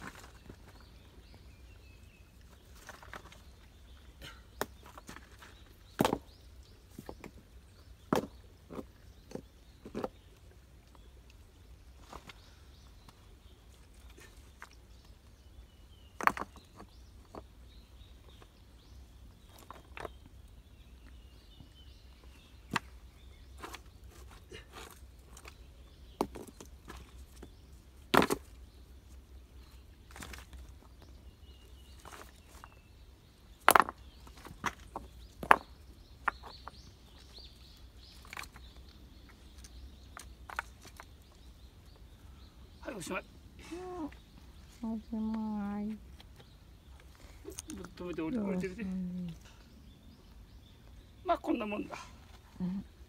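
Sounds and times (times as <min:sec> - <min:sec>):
stones knocking together: 0:04.6 - 0:06.4, 0:08.1 - 0:10.3, 0:16.2 - 0:17.5, 0:22.7 - 0:22.9, 0:26.2 - 0:28.6, 0:33.6 - 0:37.3.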